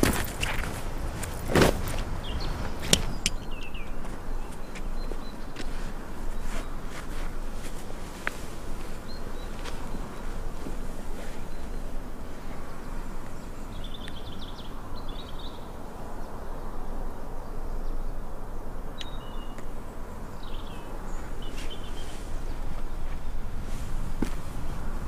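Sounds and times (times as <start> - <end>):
steady low rumble: 0.0 - 25.0
high bird chirps: 2.2 - 5.6, 19.0 - 19.6.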